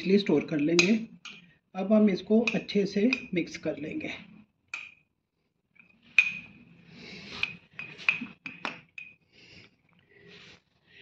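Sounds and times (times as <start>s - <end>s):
spoon clinking against glass: 6.2s - 6.5s, 7.4s - 9.2s.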